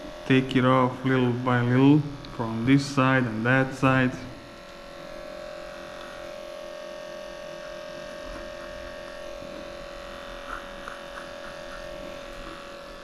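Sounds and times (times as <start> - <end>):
electric clipper humming: 0.0 - 13.0.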